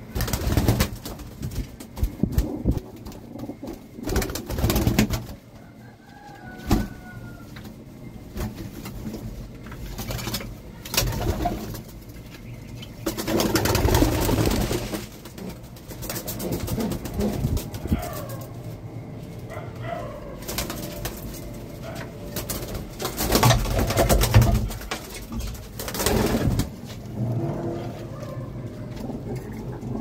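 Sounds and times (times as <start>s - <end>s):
pigeons flapping wings: 0.0s - 5.4s, 9.8s - 12.1s, 13.0s - 18.6s, 20.4s - 21.6s, 22.2s - 26.8s
pigeons cooing: 1.9s - 7.4s, 10.2s - 30.0s.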